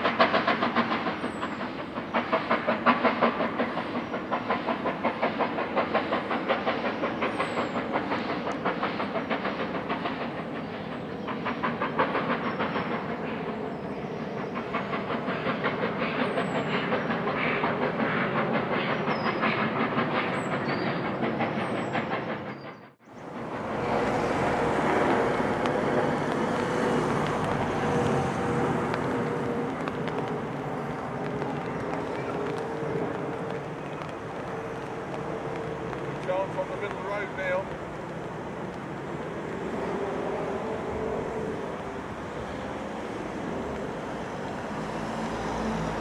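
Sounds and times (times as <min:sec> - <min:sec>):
train wheels clattering on rails: 0:00.0 - 0:46.0
faint birdsong: 0:10.1 - 0:17.8, 0:18.8 - 0:23.4
steady hiss: 0:23.4 - 0:46.0.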